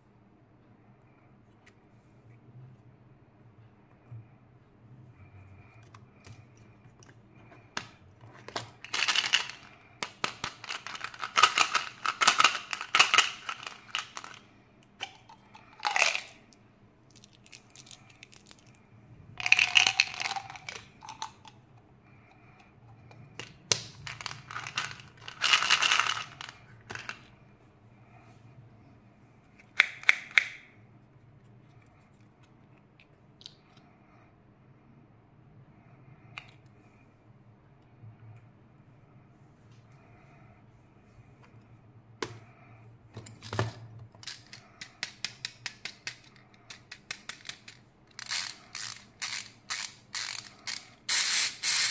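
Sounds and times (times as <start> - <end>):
faint steady hum: 0.0 - 51.9
candies rattling: 8.4 - 16.4, 17.1 - 18.8, 19.4 - 21.6, 23.4 - 27.3.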